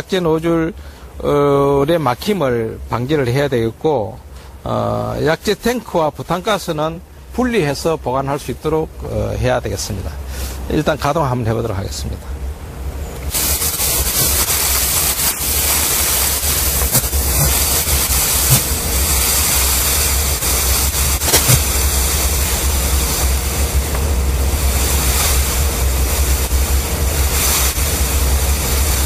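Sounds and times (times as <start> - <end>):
fogger rushing hiss: 13.2 - 29.0.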